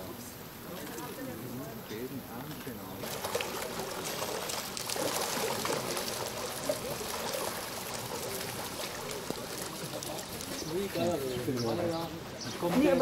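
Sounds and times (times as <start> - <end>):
water splashing and churning: 2.7 - 13.0.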